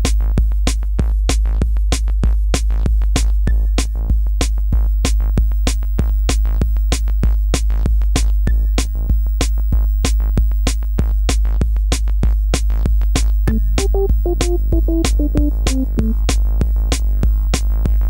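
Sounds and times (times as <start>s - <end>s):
drum machine beat: 13.5s - 16.9s
deep bass: 13.5s - 18.0s.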